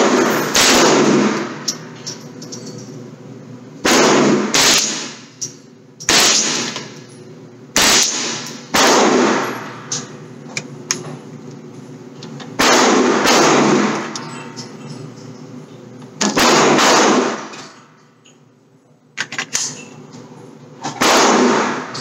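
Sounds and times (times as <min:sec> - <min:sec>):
gunshots with echo: 0:00.0 - 0:01.6, 0:03.8 - 0:05.2, 0:07.8 - 0:09.8, 0:12.6 - 0:14.1, 0:16.3 - 0:17.5, 0:21.0 - 0:22.0.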